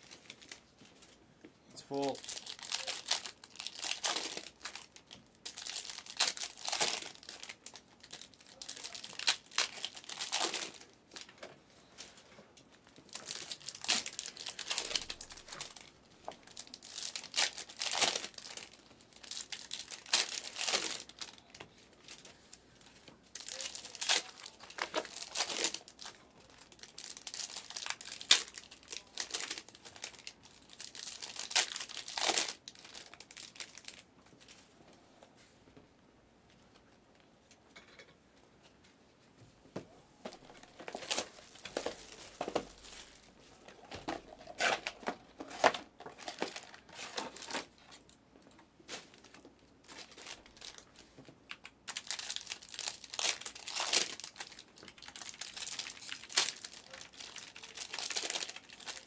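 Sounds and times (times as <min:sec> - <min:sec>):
foil wrappers crinkling and tearing: 0:00.0 - 0:01.2, 0:01.8 - 0:11.4, 0:12.6 - 0:34.6, 0:40.3 - 0:48.2, 0:48.8 - 0:59.0.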